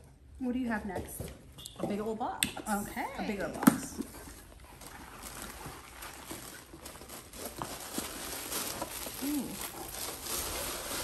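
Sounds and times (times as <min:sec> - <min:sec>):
tissue paper rustling: 0:04.4 - 0:11.0.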